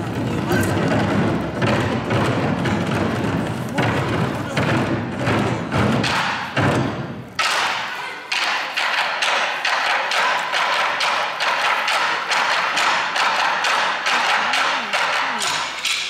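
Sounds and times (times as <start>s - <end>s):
ensemble drumming: 0.0s - 7.3s.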